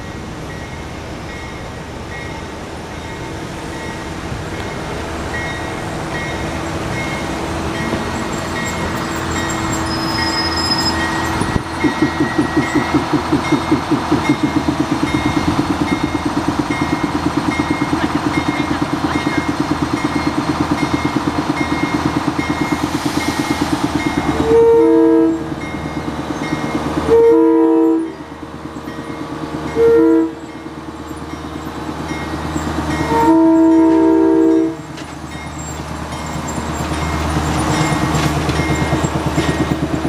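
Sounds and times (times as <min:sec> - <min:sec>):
diesel railcar engines running: 0:00.0 - 0:40.0
train horn blasts: 0:24.4 - 0:25.5, 0:27.1 - 0:28.2, 0:29.7 - 0:30.5, 0:33.0 - 0:34.9.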